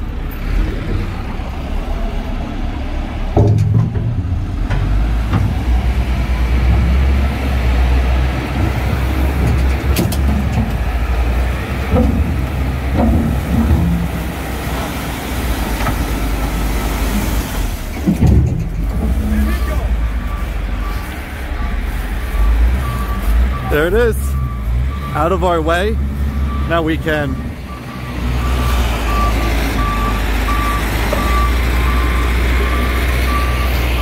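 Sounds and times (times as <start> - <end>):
diesel engine rumbling under load: 0.0 - 34.0
sharp knocks: 11.8 - 14.3.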